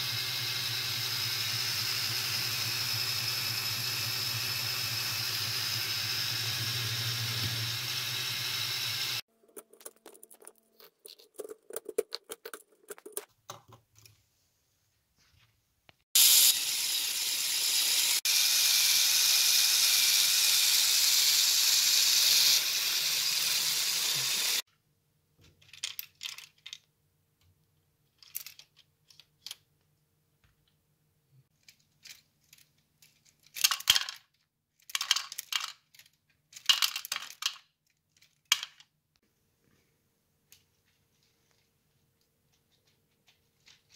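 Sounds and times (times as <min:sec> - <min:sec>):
motor driving gears whirring: 0:00.0 - 0:09.2
plastic parts clicking and rattling: 0:25.4 - 0:27.0, 0:28.0 - 0:29.8, 0:31.5 - 0:39.0
wood pellets clattering: 0:25.7 - 0:26.8.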